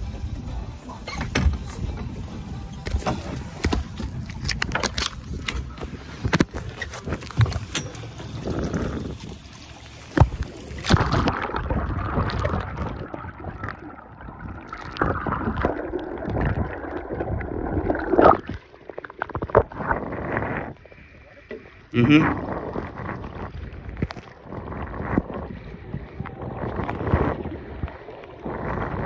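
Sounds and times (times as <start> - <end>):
water noise: 0.0 - 29.0
wind noise: 1.4 - 9.5, 10.2 - 18.6, 19.2 - 21.2, 22.0 - 29.0.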